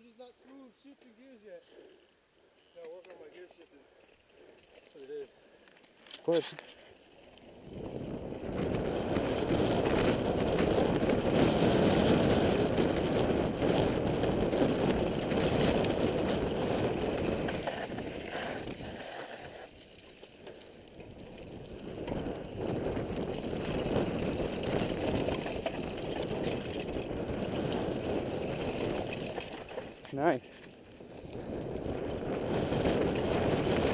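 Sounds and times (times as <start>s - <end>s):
bike tyres grinding over dirt: 4.1s - 33.9s
bike rattling over bumps: 6.0s - 33.9s.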